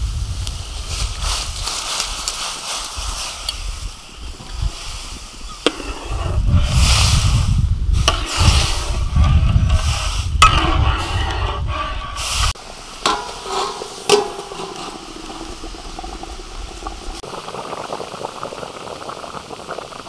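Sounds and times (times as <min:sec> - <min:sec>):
ladle stirring rice in water: 0:08.0 - 0:17.3
rice pouring into water: 0:12.6 - 0:20.0
ladle clinking against wok: 0:13.1 - 0:15.6.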